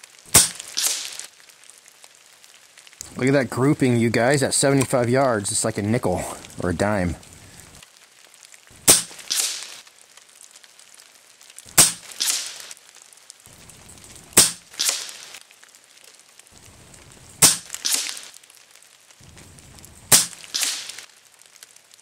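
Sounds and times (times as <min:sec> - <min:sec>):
air rifle shots cracking: 0:00.3 - 0:01.2, 0:08.8 - 0:09.8, 0:11.7 - 0:12.7, 0:14.4 - 0:15.4, 0:17.4 - 0:18.3, 0:20.1 - 0:21.0.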